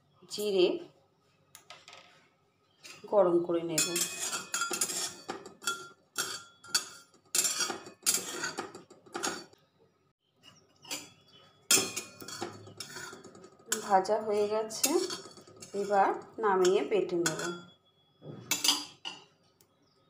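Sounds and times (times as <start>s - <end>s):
metal spatula scraping a wok: 3.8s - 9.5s, 10.8s - 17.7s.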